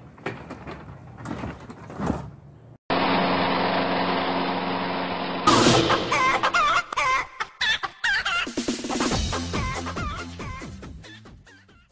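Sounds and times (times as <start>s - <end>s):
push-mower engine running: 2.9s - 6.4s.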